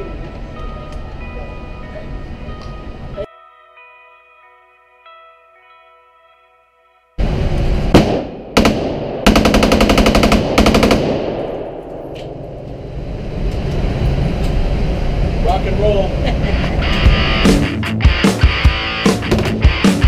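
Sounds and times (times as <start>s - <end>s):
rifle shots ringing indoors: 7.9s - 12.5s.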